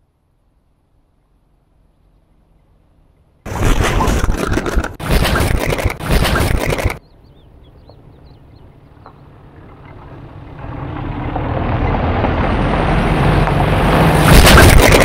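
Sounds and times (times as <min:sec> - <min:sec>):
tyres on dirt road: 0:00.0 - 0:15.0
car engine approaching: 0:07.3 - 0:14.2.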